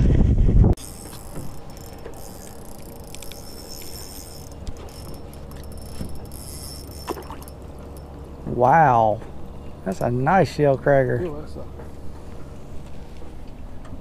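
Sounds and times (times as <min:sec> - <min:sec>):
fishing reel whirring: 0:00.8 - 0:08.2
reel ticking: 0:00.8 - 0:08.3.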